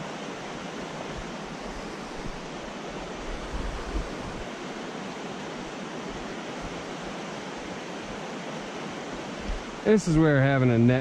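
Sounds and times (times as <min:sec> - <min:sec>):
microphone bumps: 0:09.4 - 0:09.6.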